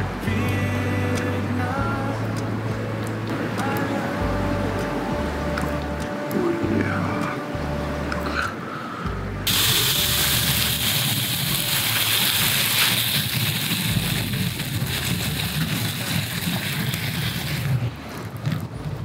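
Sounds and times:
meat sizzling in oil: 9.5 - 17.7.

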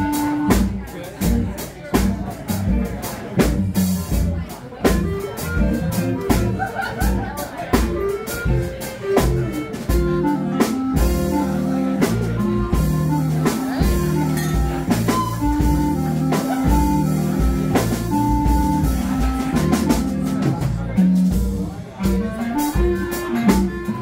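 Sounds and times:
clarinet melody: 0.0 - 1.1, 4.9 - 6.8, 7.7 - 24.0
drum kit beat: 0.0 - 24.0
upright double bass: 0.0 - 24.0
electric guitar: 8.2 - 24.0.

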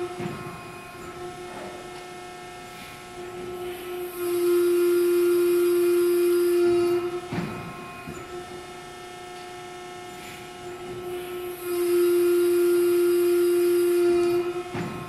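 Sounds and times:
machine clunk: 0.0 - 0.6, 7.2 - 8.3, 14.3 - 15.0
hydraulic pump whining: 0.0 - 15.0.

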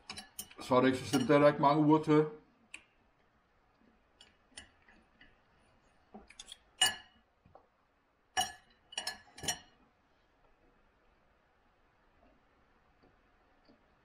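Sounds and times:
knife and fork clinking on plate: 0.0 - 1.4, 6.3 - 7.2, 8.4 - 9.8.

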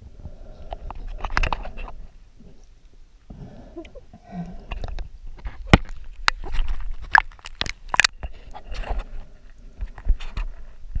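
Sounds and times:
underwater clicks and knocks: 4.6 - 9.1.

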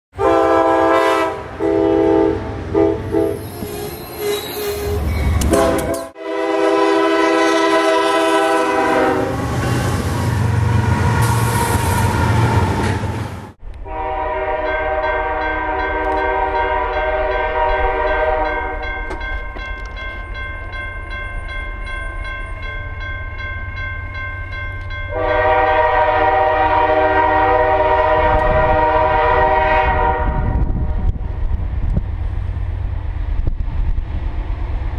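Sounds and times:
passing train rumble: 0.1 - 34.9
locomotive air horn chords: 0.2 - 3.5, 5.4 - 9.9, 13.8 - 18.8, 25.1 - 31.1.

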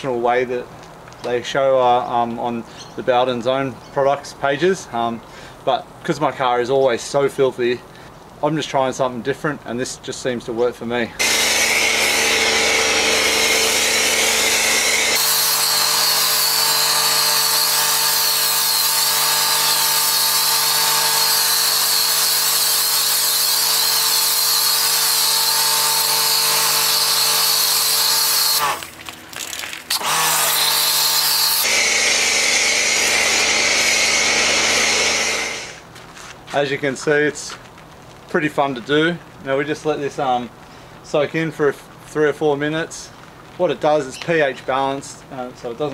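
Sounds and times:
pressure washer motor running: 11.2 - 35.8.

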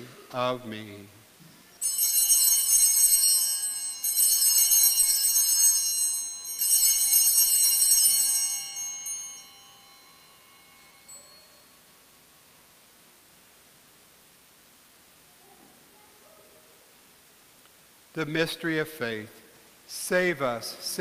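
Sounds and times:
small high-pitched bells ringing: 1.5 - 12.8.

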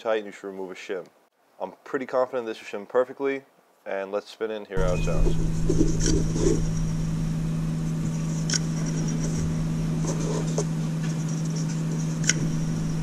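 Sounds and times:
low hum: 4.8 - 13.0.

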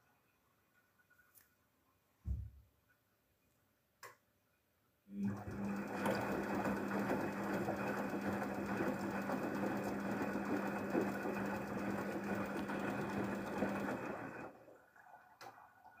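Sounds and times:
washing machine drum spinning: 5.3 - 14.5.

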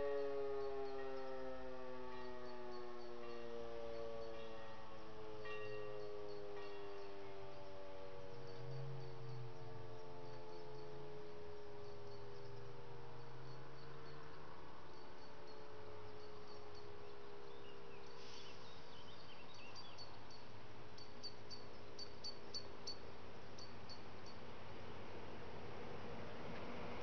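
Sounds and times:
siren wail falling in pitch: 0.0 - 11.7.

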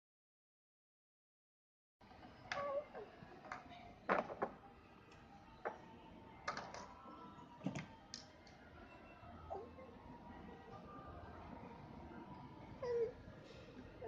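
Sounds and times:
plastic toys knocking on a tabletop: 3.5 - 4.6.

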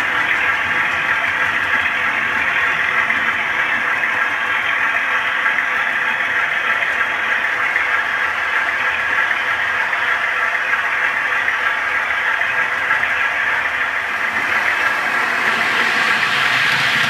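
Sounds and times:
model train engine idle sound: 0.0 - 17.0.

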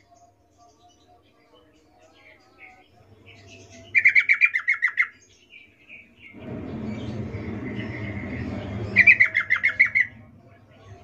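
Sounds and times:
bird chirping: 0.0 - 11.0
low rumble: 6.3 - 11.0.

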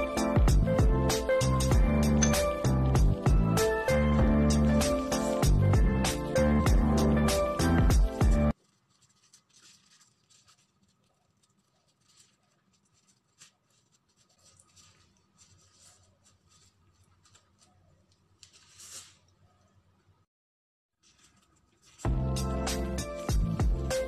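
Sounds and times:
plastic gloves crinkling: 8.5 - 20.0, 21.0 - 24.0.

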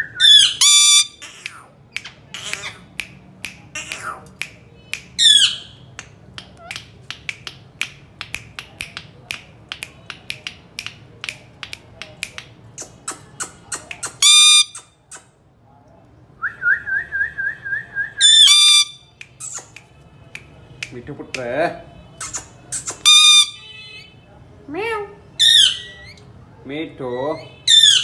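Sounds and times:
parakeet harsh screeches: 0.2 - 1.7, 13.3 - 15.0, 18.2 - 19.8, 22.2 - 24.0, 25.4 - 26.2, 27.7 - 28.0
parakeet sharp clicks: 1.2 - 5.3, 5.9 - 15.3.

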